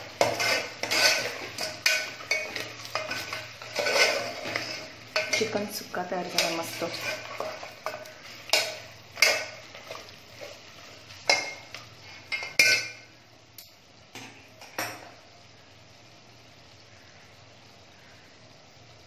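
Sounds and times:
metal ladle scraping a pot: 0.0s - 10.6s, 12.3s - 13.0s.

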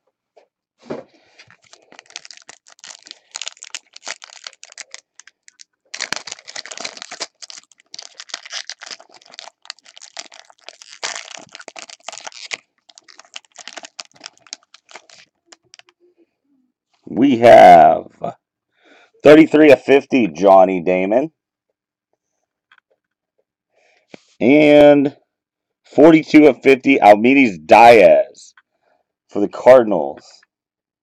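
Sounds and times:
foil wrapper crinkling: 1.3s - 15.9s.

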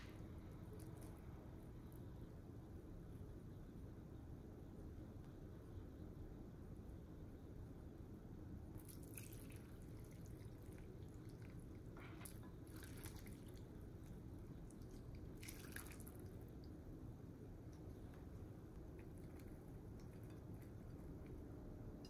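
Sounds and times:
food splashing into bowl: 8.8s - 13.7s, 14.7s - 16.4s.

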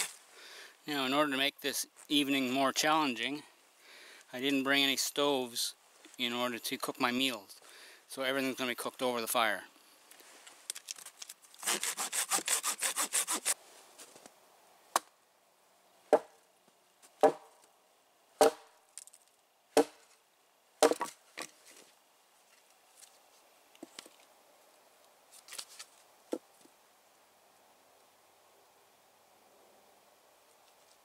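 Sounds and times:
hand saw cutting wood: 0.0s - 0.2s, 11.6s - 13.6s
hatchet knocking into log: 17.2s - 17.5s, 18.4s - 18.7s, 19.8s - 20.0s, 20.8s - 21.2s.

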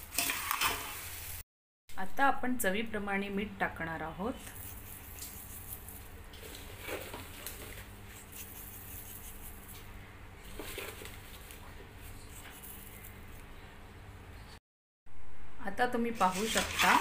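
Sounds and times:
hand stirring puffed rice: 4.4s - 13.2s.

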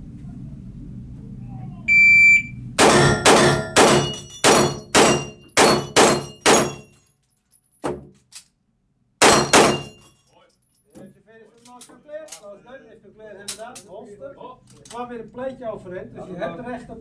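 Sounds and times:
shot timer beep: 1.9s - 4.3s
pistol shots hitting steel plates: 2.8s - 7.0s, 9.2s - 10.2s.

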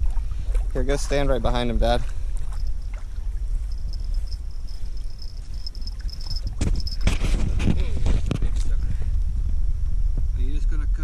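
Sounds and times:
steady low rumble: 0.0s - 11.0s
high insect buzz: 2.5s - 7.1s.

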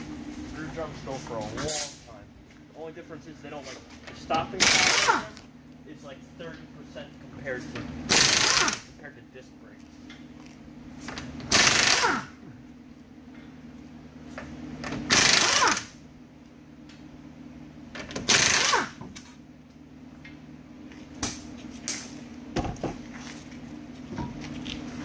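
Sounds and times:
pneumatic impact wrench hammering: 4.6s - 5.4s, 8.1s - 8.9s, 11.1s - 12.4s, 14.8s - 16.0s, 18.0s - 19.4s.

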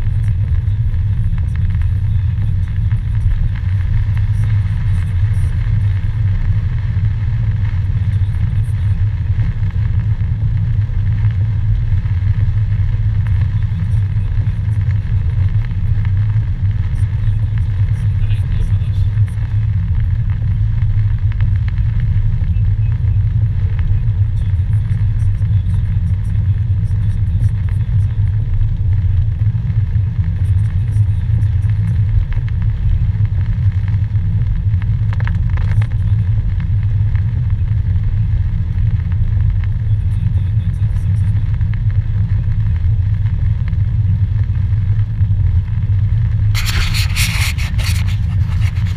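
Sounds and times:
car engine and tyres rumbling: 0.0s - 48.9s
short rustling scrape: 46.6s - 48.9s.

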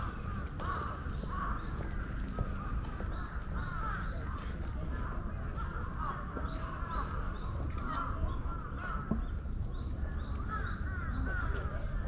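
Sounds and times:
birds calling: 0.0s - 4.5s.

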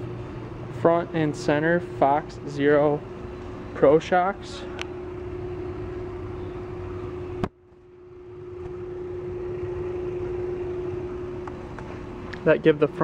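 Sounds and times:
constant tone: 0.0s - 13.0s
indoor background hum: 0.0s - 13.0s.

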